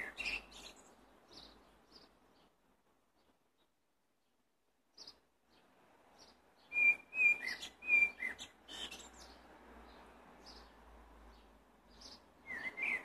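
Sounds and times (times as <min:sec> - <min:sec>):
blackbird singing: 0:00.0 - 0:02.5, 0:04.9 - 0:09.4, 0:11.3 - 0:13.0.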